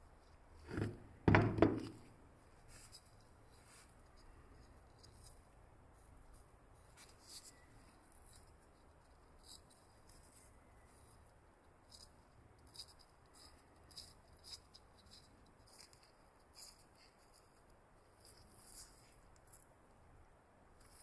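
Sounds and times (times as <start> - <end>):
gloved fingers handling metal: 0.6 - 5.4.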